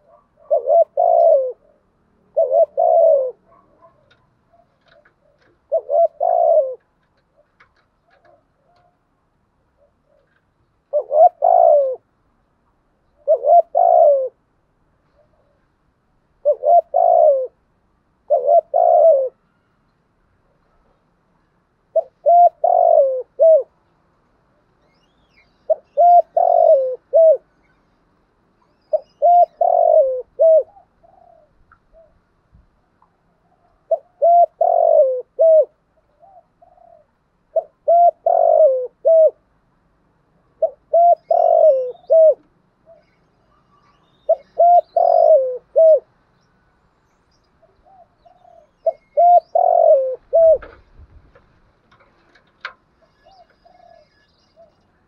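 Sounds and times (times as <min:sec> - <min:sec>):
dove cooing: 0:00.0 - 0:09.1, 0:09.7 - 0:12.1, 0:13.2 - 0:14.5, 0:16.4 - 0:19.5, 0:21.9 - 0:23.8, 0:25.7 - 0:27.5, 0:28.7 - 0:32.2, 0:33.0 - 0:39.5, 0:40.5 - 0:46.1, 0:47.6 - 0:50.9, 0:53.0 - 0:55.0.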